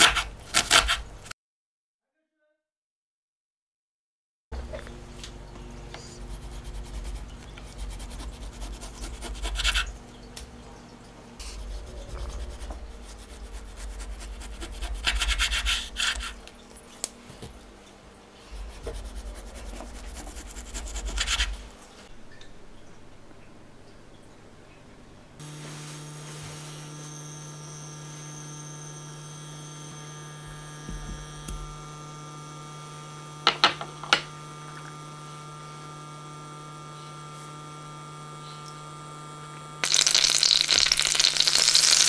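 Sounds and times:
rubbing and scraping strokes: 6.0 - 10.0, 11.4 - 16.5, 18.4 - 22.1.

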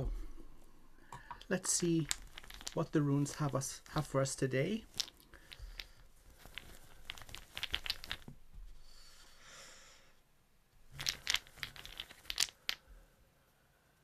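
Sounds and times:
stones clicking together: 1.2 - 8.4, 10.9 - 12.9
fabric rustling: 2.2 - 8.8.

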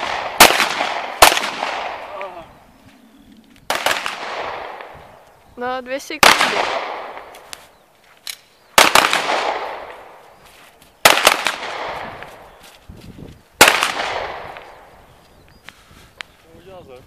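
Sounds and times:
pistol shots echoing: 0.0 - 2.4, 3.7 - 5.0, 6.2 - 7.5, 8.8 - 10.2, 11.0 - 12.3, 13.6 - 14.9.

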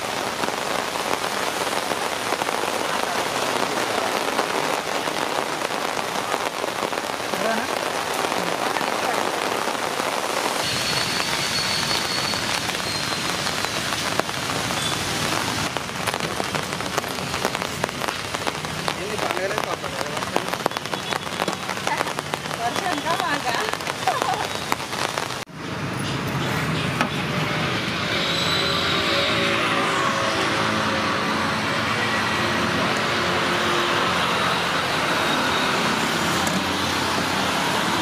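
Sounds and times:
rain on a tarp: 0.0 - 38.0
rain on wet ground: 0.0 - 38.0.

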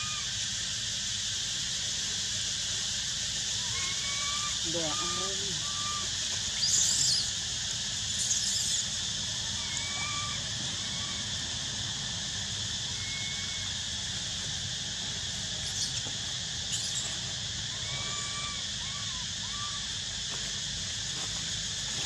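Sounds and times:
high-pitched insect chorus: 0.0 - 22.0
faint bird whistles: 5.6 - 7.3.

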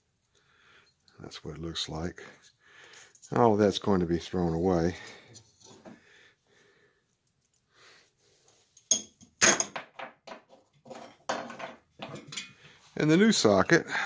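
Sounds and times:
small metal parts clinking: 2.8 - 3.6.

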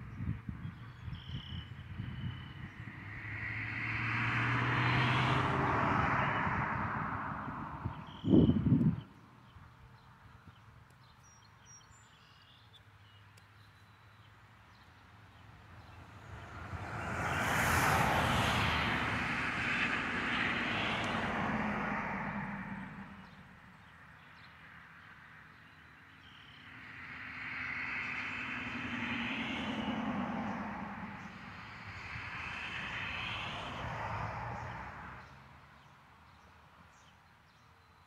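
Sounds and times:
vehicles passing by: 0.0 - 38.0.

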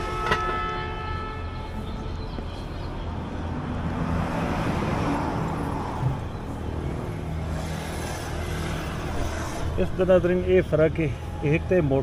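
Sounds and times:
vehicle passing by: 3.4 - 10.4.

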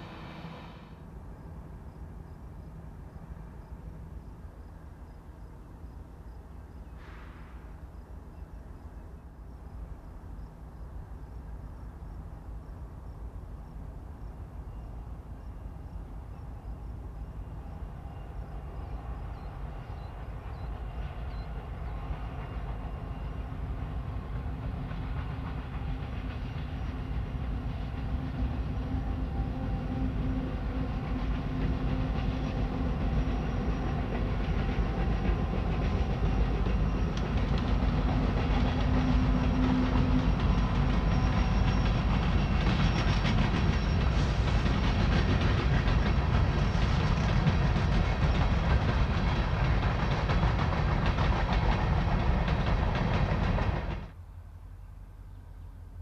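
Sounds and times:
diesel locomotive engines humming: 0.0 - 56.0
freight cars rumbling: 19.0 - 54.2
train wheels clicking on rails: 19.3 - 54.2.

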